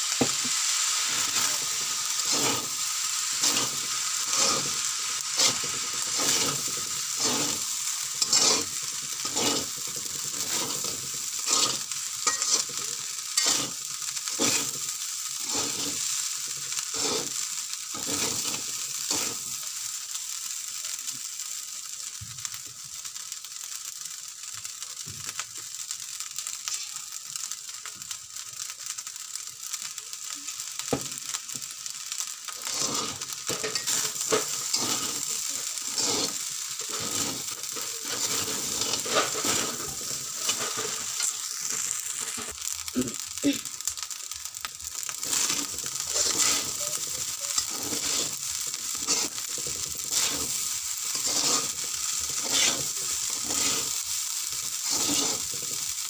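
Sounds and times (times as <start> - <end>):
rice sizzling in a wok: 0.0 - 56.0
metal spatula scraping a wok: 1.1 - 14.8, 15.4 - 16.2, 16.9 - 19.5, 32.6 - 42.5, 45.2 - 55.9.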